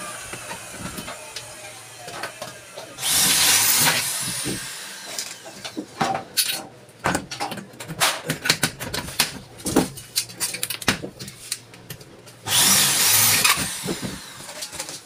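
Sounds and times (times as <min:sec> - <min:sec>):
cordless drill whining: 0:02.4 - 0:05.5, 0:12.5 - 0:14.8.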